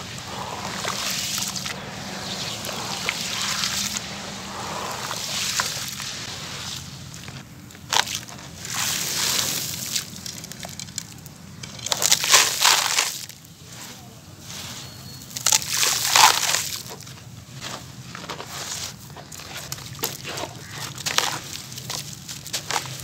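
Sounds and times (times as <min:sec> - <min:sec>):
cement pouring with a hiss: 0:00.0 - 0:07.4, 0:08.6 - 0:10.5.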